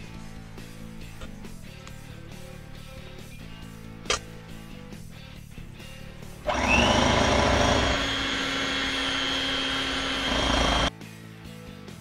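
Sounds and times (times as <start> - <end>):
electric hand mixer whining: 6.4 - 10.9.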